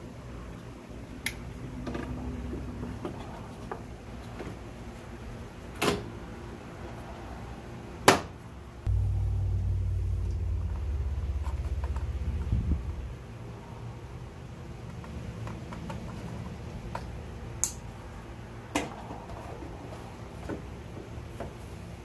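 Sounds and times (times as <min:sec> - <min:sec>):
low rumble: 0:08.9 - 0:14.2.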